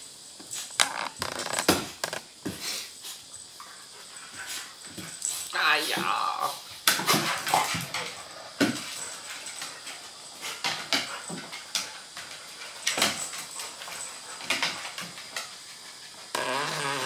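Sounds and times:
dog paws clicking on wooden floor: 6.8s - 16.5s.

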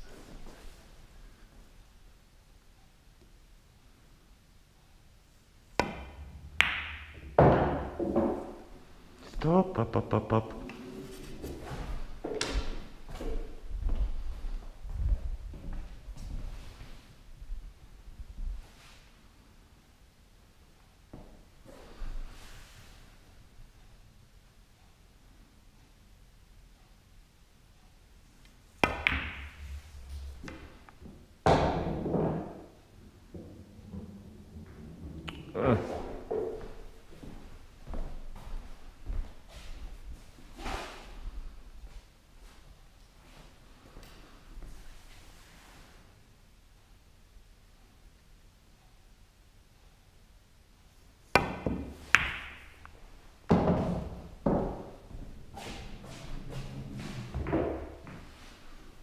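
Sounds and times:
balls knocking on table: 5.8s - 8.6s, 28.8s - 29.6s, 51.4s - 52.9s
cue tip striking ball: 5.8s - 8.6s, 28.8s - 29.6s, 51.4s - 52.8s.

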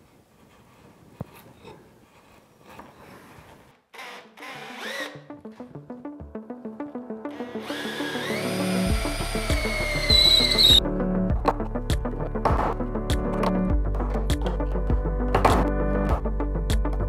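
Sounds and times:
background music: 4.4s - 17.0s.

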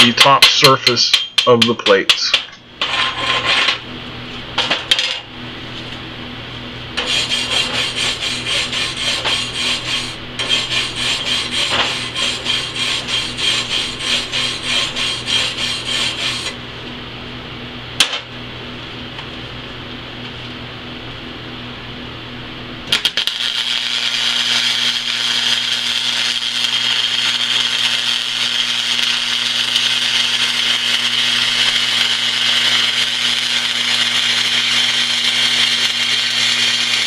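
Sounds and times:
wire brush scrubbing metal: 7.0s - 16.6s.

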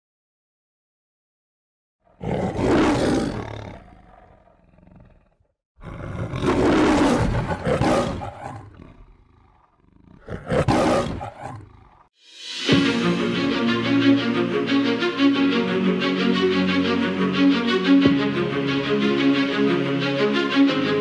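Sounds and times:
lion roaring: 2.1s - 12.1s
music with held notes: 12.2s - 21.0s.

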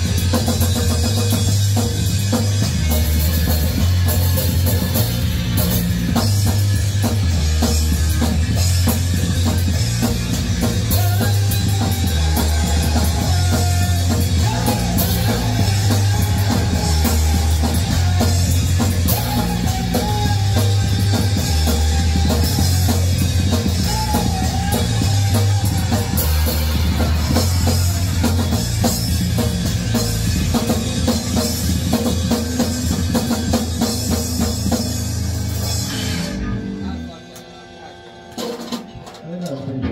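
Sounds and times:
rock band playing live: 0.0s - 39.9s
guitarist singing: 10.6s - 28.8s.

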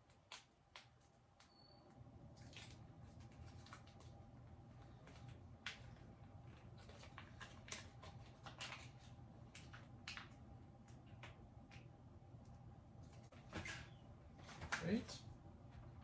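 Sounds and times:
foil pouch crinkling: 2.3s - 5.4s.

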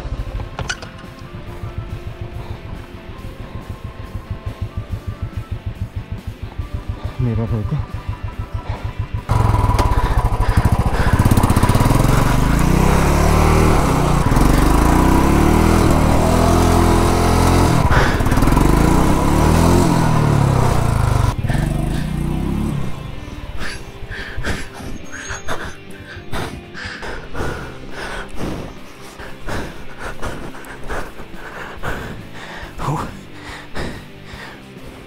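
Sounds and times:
motorcycle engine revving: 0.0s - 33.2s.

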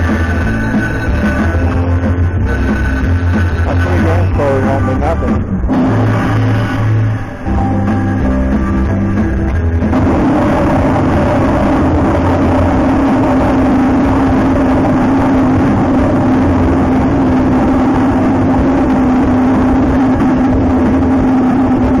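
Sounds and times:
slot machine music: 0.0s - 12.9s.

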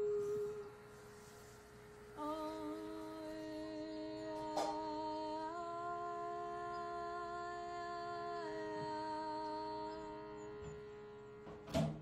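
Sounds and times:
woman singing held vowel: 0.0s - 0.9s, 2.2s - 10.5s
shruti box drone: 0.0s - 12.0s.

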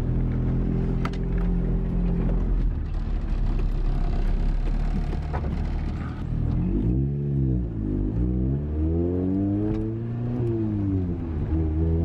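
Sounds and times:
car engine running: 0.0s - 6.8s.

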